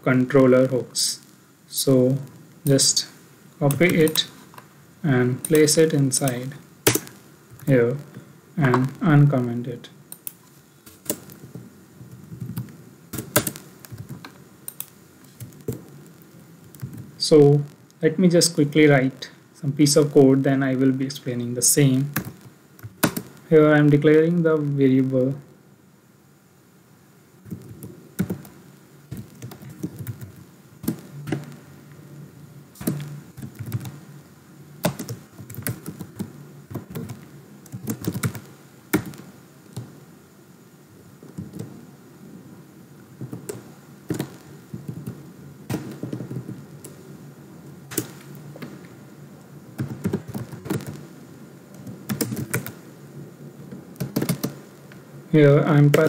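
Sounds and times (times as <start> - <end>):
keyboard typing: 10.1 - 15.8, 22.1 - 23.3, 27.5 - 31.6, 32.8 - 34.0, 34.8 - 39.9, 43.2 - 47.0, 49.8 - 51.0, 51.8 - 52.8, 54.0 - 54.6.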